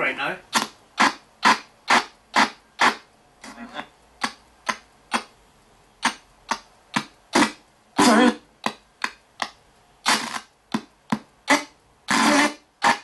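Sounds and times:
chopped radio static bursts: 0.0 - 5.3, 11.5 - 13.0
garbled voice fragment: 0.0 - 5.3, 6.0 - 9.2.

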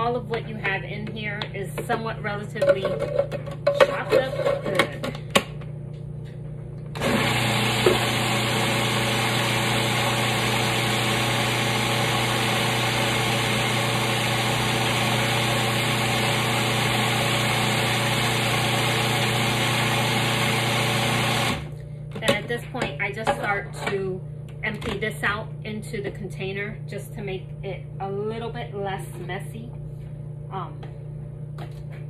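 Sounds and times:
food processor motor hum: 6.8 - 22.4.

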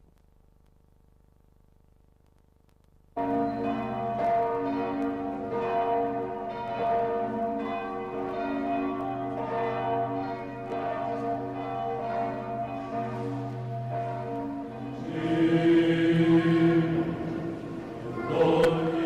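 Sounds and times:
church bells pealing: 3.2 - 19.0.

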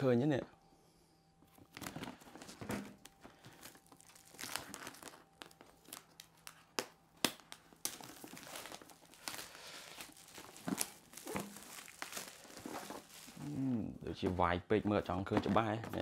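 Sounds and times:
plastic shrink-wrap crinkling and tearing: 1.6 - 13.7.

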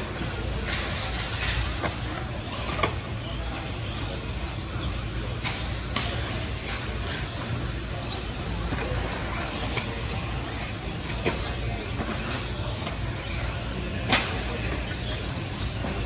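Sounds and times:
rc car motors and tyres hissing: 3.7 - 16.0.

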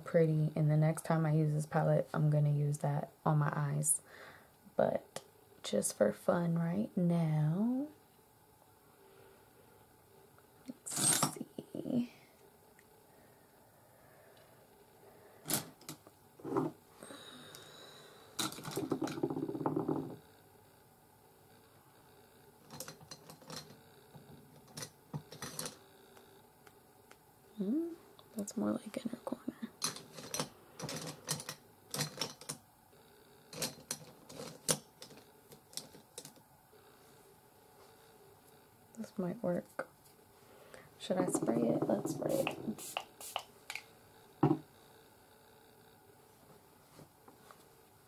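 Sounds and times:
knock on tabletop: 18.9 - 20.2, 44.4 - 44.6.

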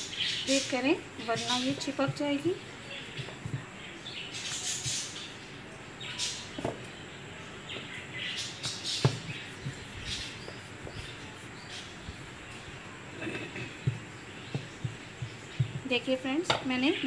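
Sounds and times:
rolling pin swishing on dough: 0.5 - 3.8, 8.7 - 13.2, 13.8 - 16.0.

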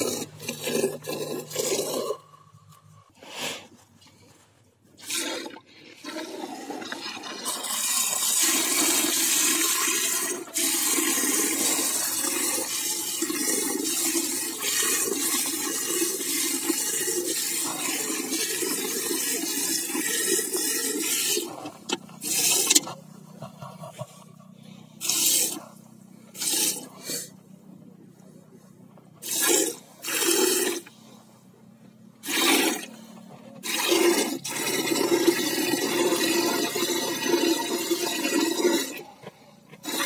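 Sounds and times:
milk jets splashing into bucket: 5.0 - 21.6, 29.2 - 30.8, 33.6 - 39.0, 39.8 - 40.0.

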